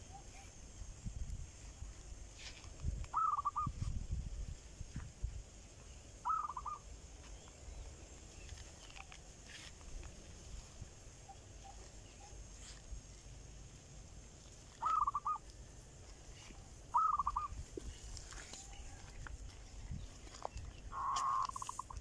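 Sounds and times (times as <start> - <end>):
bird calling harshly: 3.1 - 3.8, 6.2 - 6.9, 14.8 - 15.5, 16.9 - 17.6, 20.8 - 22.0.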